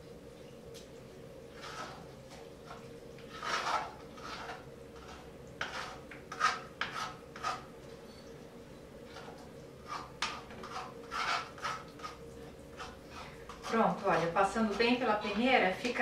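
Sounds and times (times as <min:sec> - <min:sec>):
spoon scraping through sieve: 0:01.5 - 0:07.7, 0:09.1 - 0:15.5.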